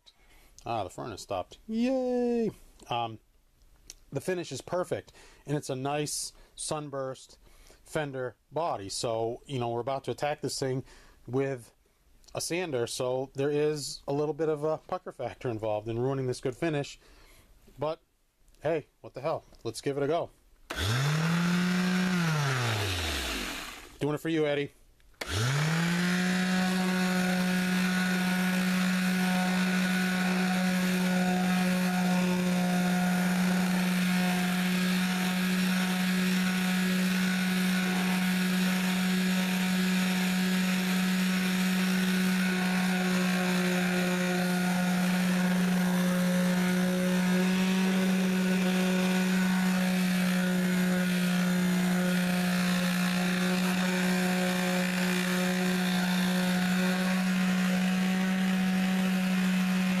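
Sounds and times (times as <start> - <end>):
electric sander humming: 20.7 - 24.0, 25.2 - 60.0
sandpaper rasping on wood: 25.9 - 60.0.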